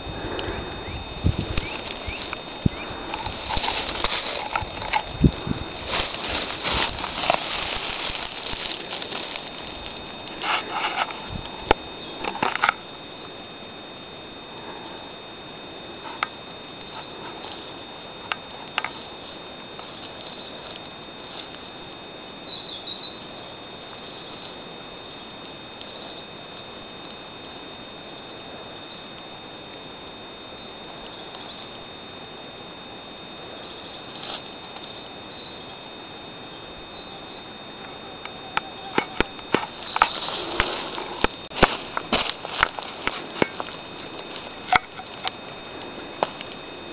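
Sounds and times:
birds chirping: 0:00.0 - 0:13.1, 0:15.6 - 0:17.8, 0:18.5 - 0:20.5, 0:21.9 - 0:25.2, 0:25.8 - 0:28.9, 0:30.4 - 0:32.1, 0:34.6 - 0:46.8
steady high tone: 0:00.0 - 0:31.0, 0:31.6 - 0:46.9
footsteps on leaves: 0:01.0 - 0:12.7, 0:18.9 - 0:21.7, 0:34.1 - 0:34.9, 0:38.6 - 0:46.9.

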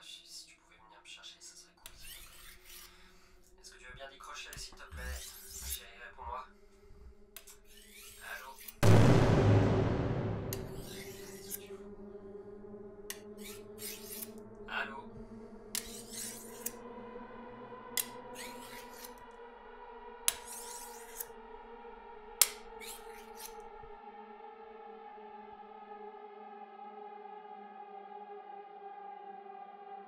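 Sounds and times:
knife scraping on sharpening steel: 0:01.9 - 0:03.1, 0:05.1 - 0:05.8, 0:07.4 - 0:08.8, 0:13.2 - 0:14.3, 0:15.8 - 0:16.7, 0:22.8 - 0:23.6
low music drone: 0:08.8 - 0:30.0.

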